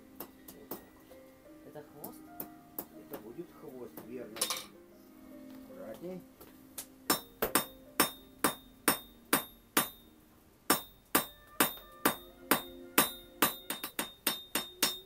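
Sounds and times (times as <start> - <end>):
hammer striking iron on anvil: 7.1 - 10.1, 10.7 - 15.0.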